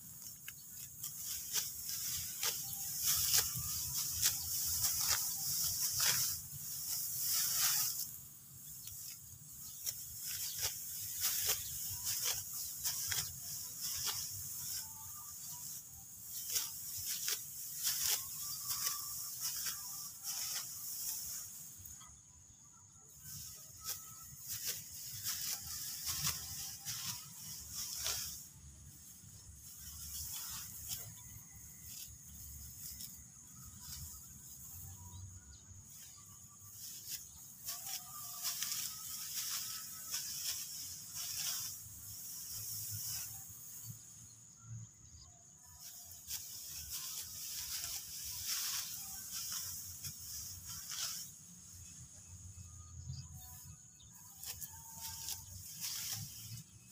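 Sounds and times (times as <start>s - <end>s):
sickle cutting rice stalks: 0.0s - 22.2s, 23.0s - 56.9s
steady high hiss: 35.7s - 44.8s, 45.8s - 52.6s.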